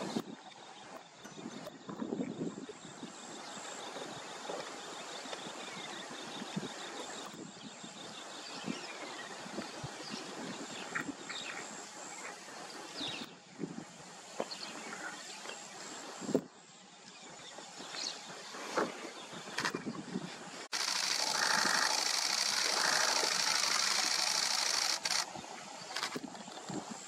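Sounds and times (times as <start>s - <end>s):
rapid even trill: 20.7s - 25.3s
small birds chirping: 20.7s - 27.0s.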